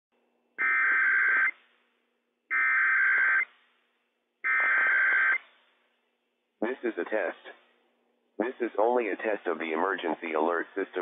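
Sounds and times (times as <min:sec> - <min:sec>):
harsh digital data buzz: 0:04.5 - 0:05.4.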